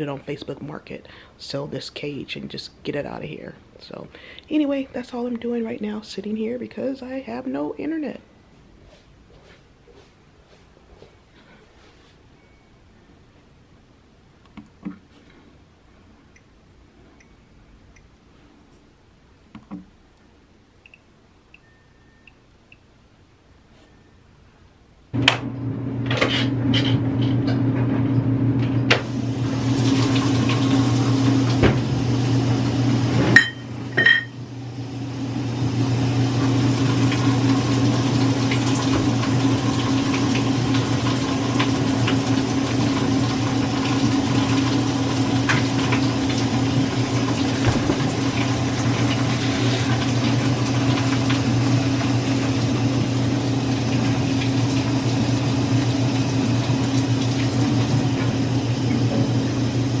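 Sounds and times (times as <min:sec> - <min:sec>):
washing machine humming: 0:25.1 - 1:00.0.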